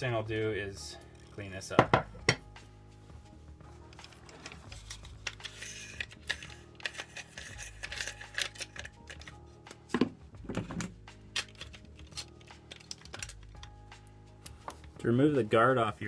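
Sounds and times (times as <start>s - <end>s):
metal guard clicking and clinking: 3.9s - 9.4s.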